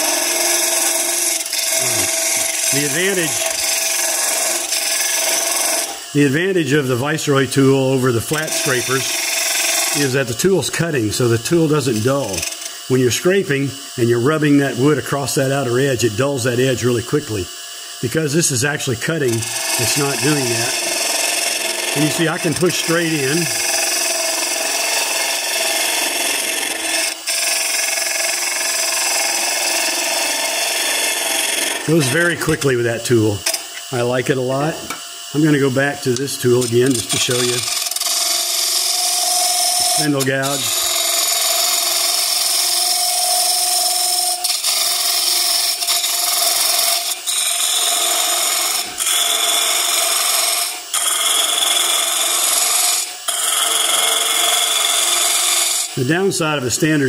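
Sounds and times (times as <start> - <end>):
gouge rasping on wood: 0.0 - 5.9, 36.9 - 55.9
lathe tool cutting wood: 0.0 - 57.0.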